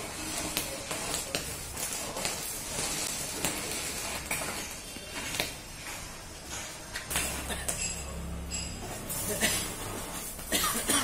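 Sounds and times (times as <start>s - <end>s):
welding arc hissing and popping: 0.0s - 11.0s.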